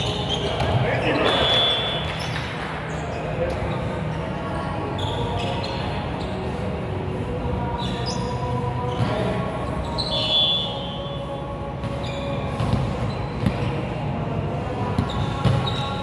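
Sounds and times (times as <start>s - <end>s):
shoe squeak on court: 0.0s - 3.9s, 5.0s - 6.5s, 7.8s - 11.1s, 11.8s - 13.8s, 15.0s - 16.0s.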